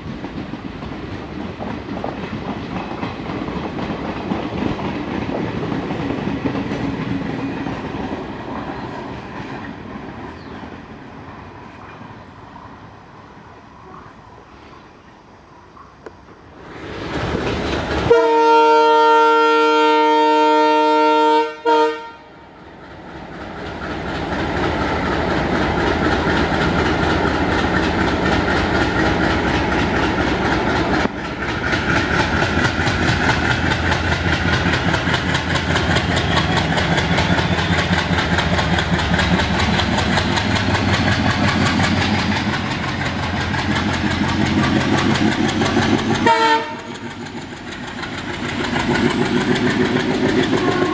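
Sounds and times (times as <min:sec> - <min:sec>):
locomotive air horn: 0:18.1 - 0:22.3, 0:46.2 - 0:47.0, 0:50.4 - 0:50.9
diesel engine chugging: 0:23.3 - 0:50.9.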